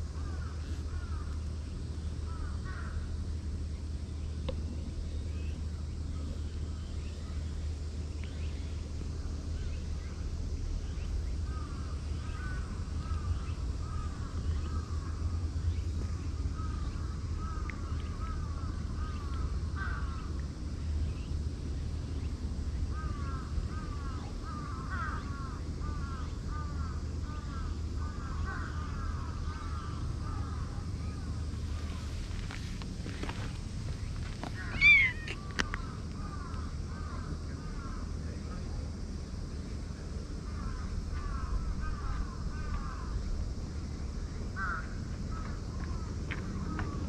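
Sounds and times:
crows cawing: 0:00.2 - 0:01.4, 0:02.3 - 0:03.1, 0:11.4 - 0:15.3, 0:16.1 - 0:20.4, 0:22.9 - 0:33.5, 0:34.2 - 0:38.0, 0:40.5 - 0:43.2, 0:44.6 - 0:47.0.

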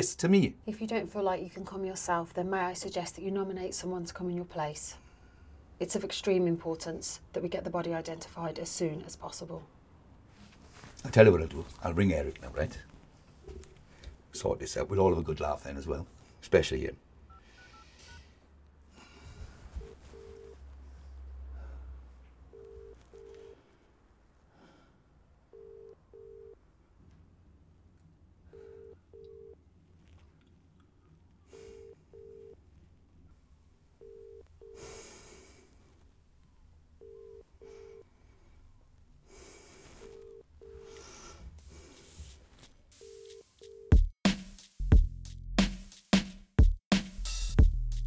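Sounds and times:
telephone ringing tone: 0:17.3 - 0:18.4, 0:19.8 - 0:20.7, 0:22.5 - 0:23.6, 0:25.5 - 0:26.6, 0:28.5 - 0:29.6, 0:31.5 - 0:32.6, 0:34.0 - 0:34.8, 0:37.0 - 0:38.1, 0:40.0 - 0:41.0, 0:42.9 - 0:44.0.

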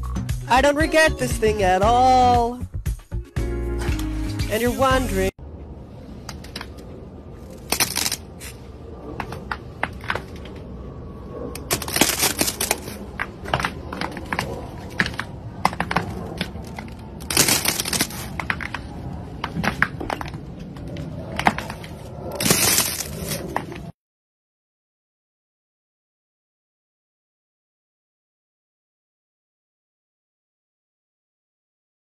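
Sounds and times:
ice crackling and snapping: 0:07.5 - 0:08.5, 0:11.6 - 0:13.0, 0:16.4 - 0:18.8, 0:22.3 - 0:23.4.

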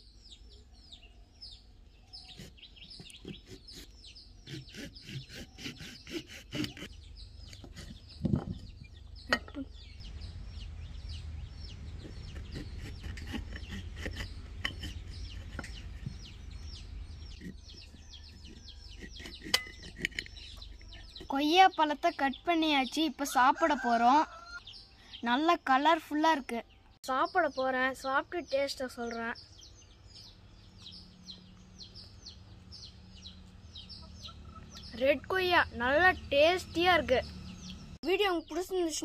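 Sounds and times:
birds chirping: 0:00.0 - 0:39.0
steady low rumble: 0:07.0 - 0:12.8.

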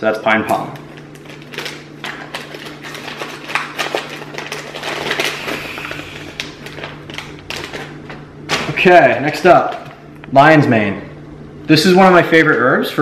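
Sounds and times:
steady low hum: 0:00.0 - 0:13.0
packages clicking and rustling: 0:00.5 - 0:09.0.

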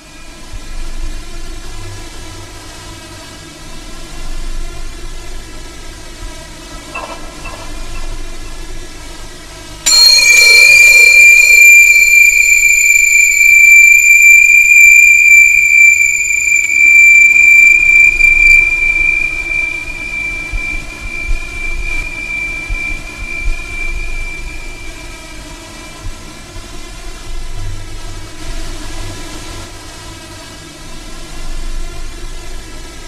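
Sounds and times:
high-pitched ringing tone: 0:07.0 - 0:08.6, 0:09.9 - 0:26.6.

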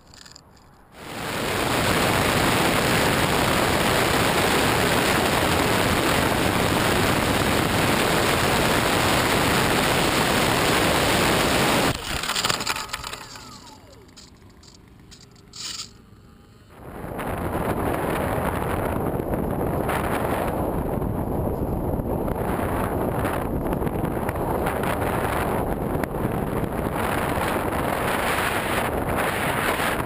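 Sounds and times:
faint falling whine: 0:00.0 - 0:23.6
rush of air and ducted fans: 0:01.0 - 0:14.0, 0:16.7 - 0:30.0.

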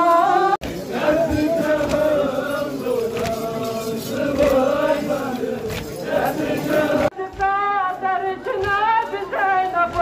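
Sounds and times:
crowd of men chanting a lament: 0:00.0 - 0:07.2.

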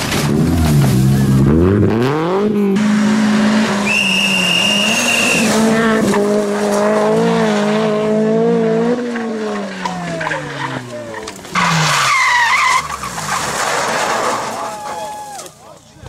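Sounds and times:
rally car engines revving high: 0:00.0 - 0:14.6
car sliding through gravel: 0:02.9 - 0:07.7, 0:09.1 - 0:15.6.

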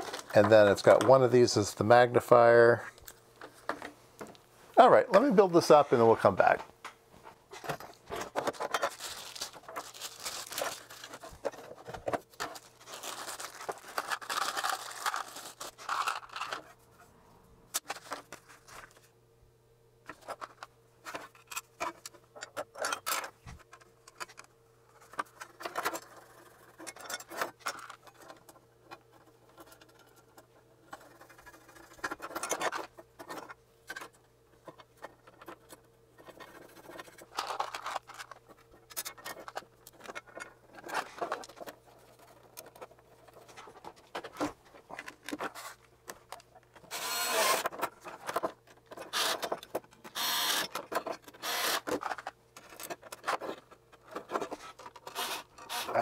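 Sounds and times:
faint steady hum: 0:00.0 - 0:56.0
metal and plastic parts clicking: 0:20.1 - 0:56.0.

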